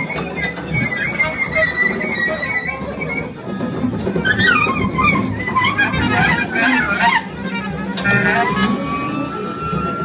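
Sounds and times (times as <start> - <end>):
clarinet playing fast runs: 0.0 - 10.0
drums: 0.0 - 10.0
bowed double bass: 0.8 - 10.0
trumpet playing fast runs: 4.2 - 9.3.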